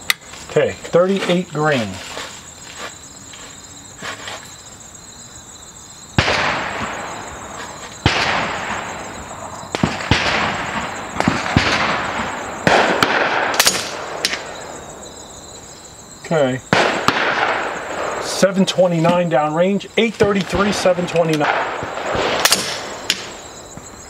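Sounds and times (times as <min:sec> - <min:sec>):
air rifle shots echoing: 0:06.2 - 0:14.8, 0:16.7 - 0:19.3, 0:20.2 - 0:23.4.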